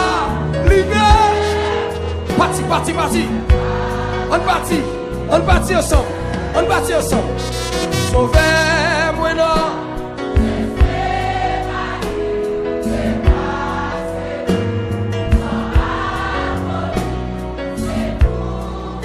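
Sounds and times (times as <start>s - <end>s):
choir singing held notes: 0.0s - 8.9s, 9.7s - 19.0s
bass line: 0.0s - 9.8s.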